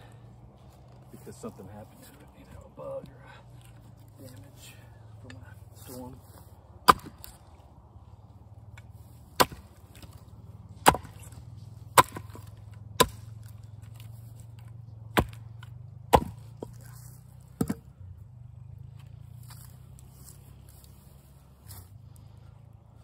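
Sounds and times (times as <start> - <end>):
axe chopping wood: 6.8 - 7.5, 8.7 - 17.9.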